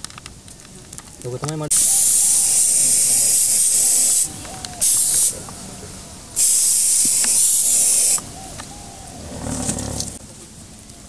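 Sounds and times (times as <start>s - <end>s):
aerosol spray can hissing: 1.7s - 5.4s, 6.4s - 8.3s.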